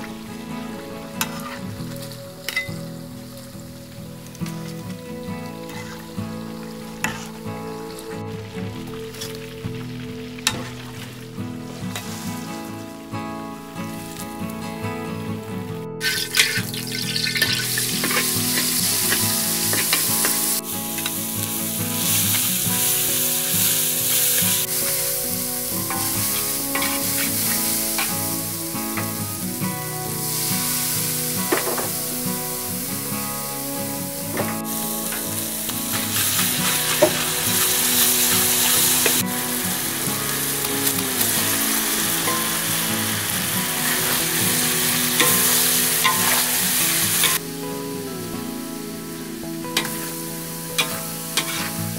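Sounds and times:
food sizzling in wok: 0.0s - 14.8s, 16.0s - 51.9s
metal ladle scraping wok: 7.0s - 7.4s, 25.8s - 28.4s, 50.8s - 51.8s.

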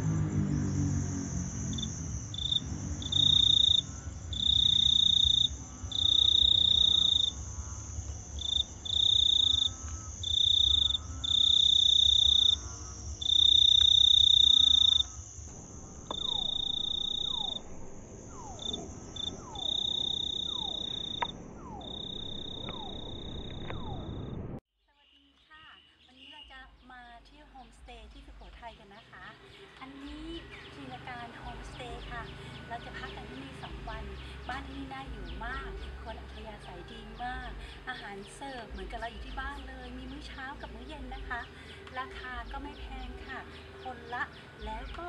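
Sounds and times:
high hiss: 0.0s - 24.6s
insects chirring: 0.0s - 24.6s.

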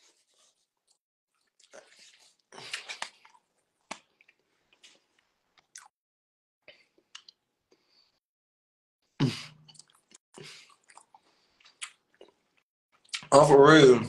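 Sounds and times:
person chewing food: 0.0s - 5.9s, 6.6s - 8.2s, 9.5s - 13.3s.

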